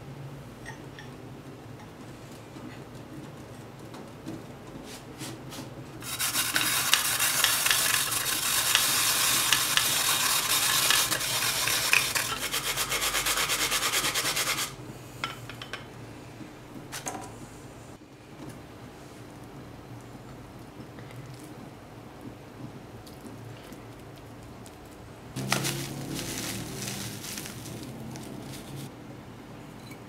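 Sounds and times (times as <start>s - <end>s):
radish grated on plastic grater: 6.0s - 14.7s.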